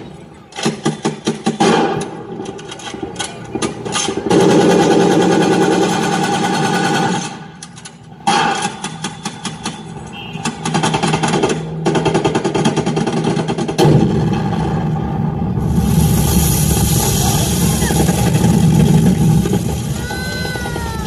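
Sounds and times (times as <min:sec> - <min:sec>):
rapid rattling gunfire: 0:00.6 - 0:07.6, 0:08.2 - 0:09.8, 0:10.4 - 0:15.4
loud steady engine-like noise: 0:02.0 - 0:21.0.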